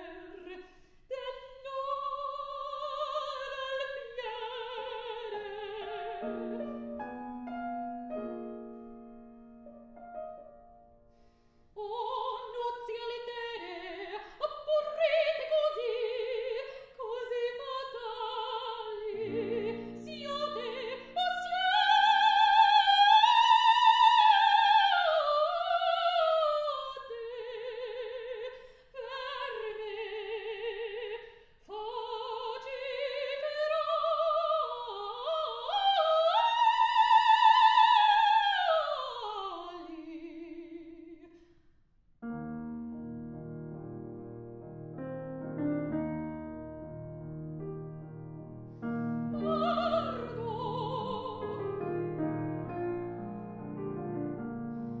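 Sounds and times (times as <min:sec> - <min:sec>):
soprano singing opera: 0:00.0 - 0:06.9, 0:11.8 - 0:41.3, 0:49.2 - 0:54.3
grand piano accompaniment: 0:03.9 - 0:11.4, 0:17.3 - 0:23.4, 0:42.2 - 0:55.0.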